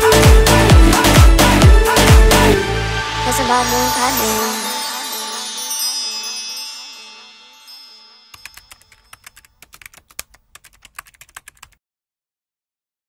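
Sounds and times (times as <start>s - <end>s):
shimmering chime: 2.9s - 9.3s
keyboard typing clicks: 8.3s - 11.8s.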